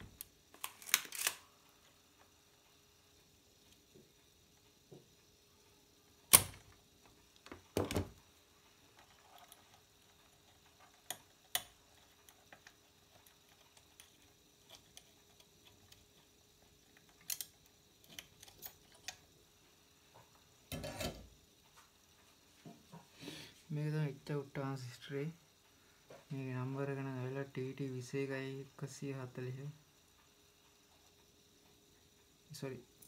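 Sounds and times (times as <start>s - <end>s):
faint steady hum: 0.0s - 33.0s
tools and circuit board clicking: 0.1s - 1.4s, 6.3s - 6.7s, 10.6s - 16.3s, 16.9s - 19.2s.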